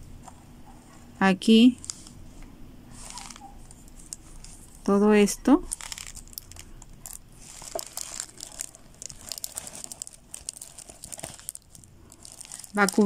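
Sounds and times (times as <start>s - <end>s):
plastic sheet crinkling: 1.8s - 2.2s, 2.9s - 4.9s, 5.6s - 13.0s.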